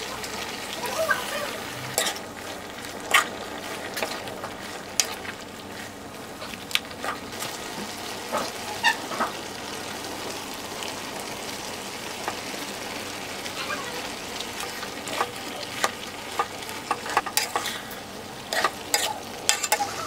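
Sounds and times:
stir-fry sizzling in a wok: 0:00.0 - 0:20.0
metal spatula clinking on wok: 0:18.5 - 0:19.9.

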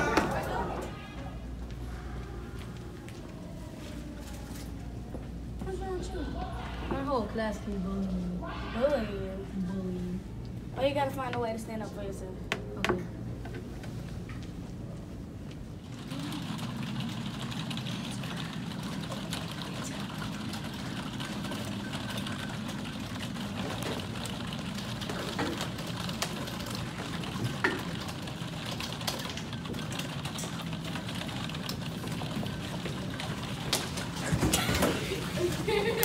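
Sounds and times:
machine room hum and hiss: 0:00.0 - 0:36.0.

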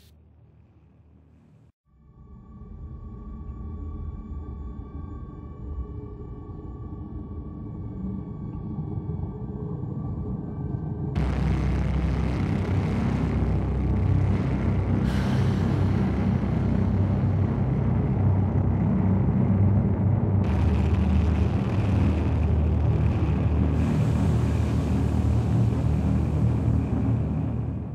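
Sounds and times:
dark ambient music rumble: 0:00.1 - 0:27.9.

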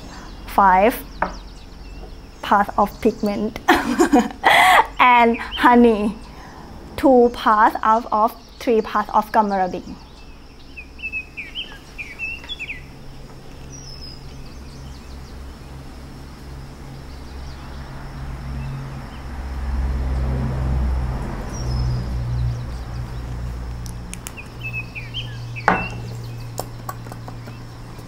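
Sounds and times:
small bird chirping: 0:00.0 - 0:06.4, 0:07.8 - 0:15.9, 0:21.5 - 0:28.0
low droning hum: 0:00.0 - 0:28.0.

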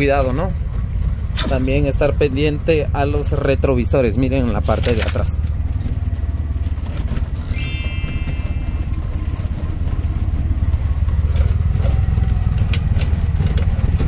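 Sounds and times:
auto-rickshaw engine running: 0:00.0 - 0:14.0
high chime-like tones: 0:07.4 - 0:09.5.

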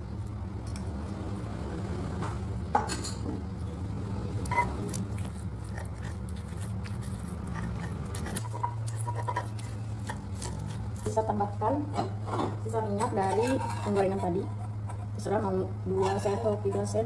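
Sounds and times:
pestle crushing in stone mortar: 0:04.5 - 0:11.2.

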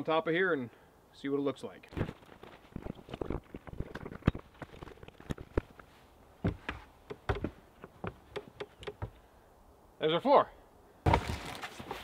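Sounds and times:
boots on plywood deck: 0:06.4 - 0:09.2, 0:11.1 - 0:12.0
wood knocking on concrete: 0:06.4 - 0:09.2.

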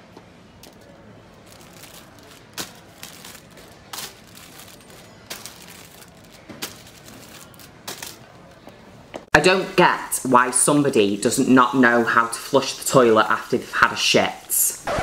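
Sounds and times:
packets clicking and crinkling: 0:00.6 - 0:08.8.

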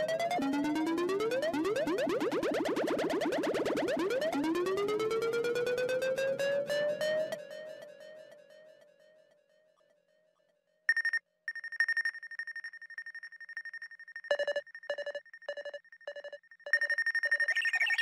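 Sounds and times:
high fluttering beep tone: 0:10.9 - 0:18.0.

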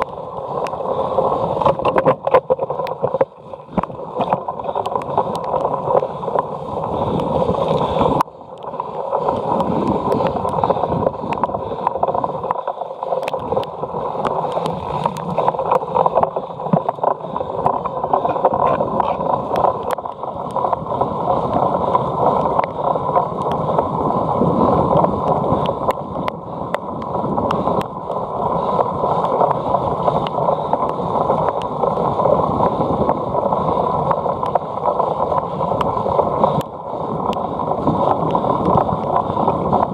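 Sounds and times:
bike clicking and rattling: 0:00.0 - 0:39.9
wind rush on microphone: 0:00.0 - 0:39.9.

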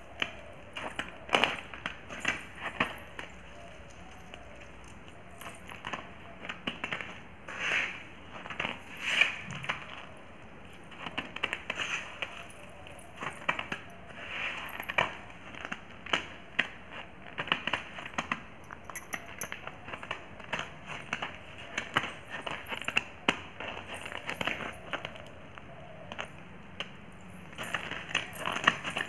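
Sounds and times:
anklet bells jingling: 0:00.4 - 0:05.9, 0:18.6 - 0:20.2, 0:27.1 - 0:29.0.

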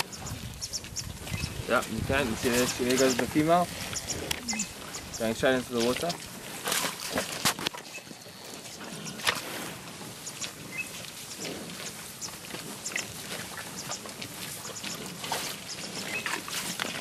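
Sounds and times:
high chirps: 0:04.0 - 0:05.1.

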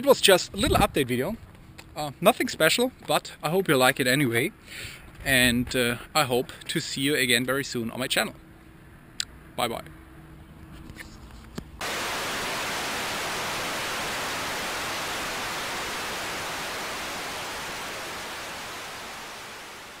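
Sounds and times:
faint outdoor ambience: 0:00.0 - 0:20.0
analog static hiss: 0:11.8 - 0:20.0.

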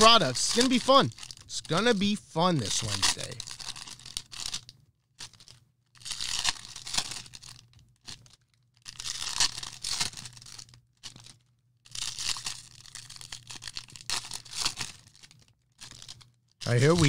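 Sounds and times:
card pack wrappers tearing: 0:00.0 - 0:17.0.

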